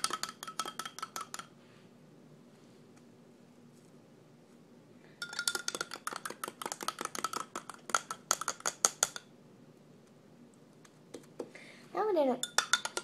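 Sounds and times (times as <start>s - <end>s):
spoon clinking against glass: 0.0s - 1.5s, 5.2s - 6.2s, 12.4s - 13.0s.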